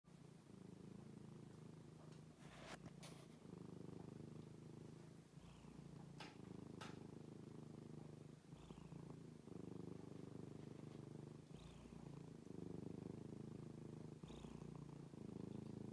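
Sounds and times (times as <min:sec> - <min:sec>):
cat purring: 0:00.1 - 0:15.9
faint clicks: 0:06.0 - 0:07.1.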